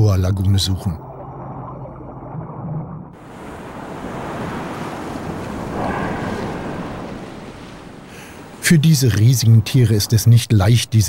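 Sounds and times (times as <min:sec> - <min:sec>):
choppy sea waves: 0:03.1 - 0:11.0
wind buffeting microphone: 0:03.5 - 0:08.6
whale blow exhalation: 0:05.3 - 0:08.6.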